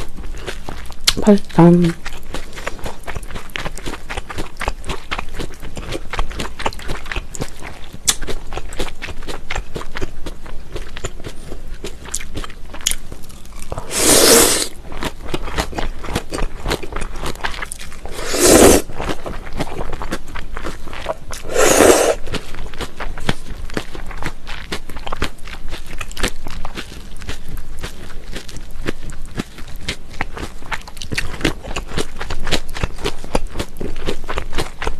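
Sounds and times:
wet chewing and crunching: 0:00.0 - 0:34.9
noodles slurped: 0:13.7 - 0:14.8, 0:18.0 - 0:19.0, 0:21.3 - 0:22.4.

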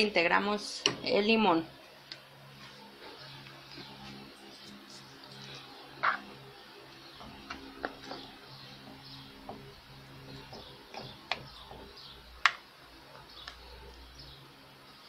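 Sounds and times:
low steady hum: 0:00.0 - 0:15.0
liquid bubbling in a pan: 0:07.1 - 0:14.2.

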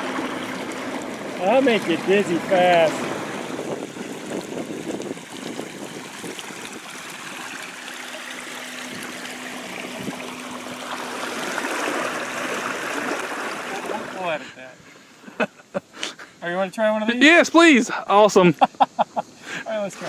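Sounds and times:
trolling motor hum: 0:00.0 - 0:14.6
water rushing around boat hulls: 0:00.0 - 0:14.9.

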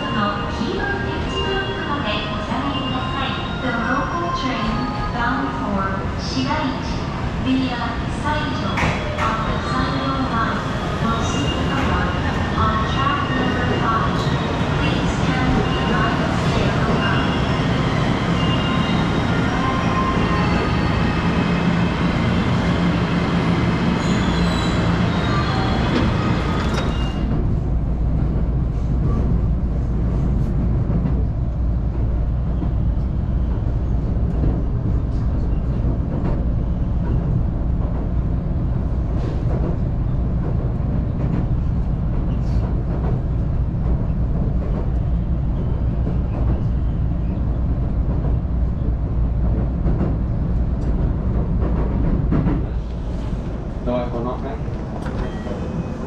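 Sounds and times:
train running rumble: 0:19.1 - 0:56.0.

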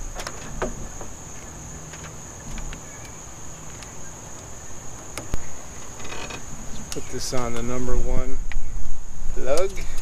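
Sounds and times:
high insect drone: 0:00.0 - 0:10.0.

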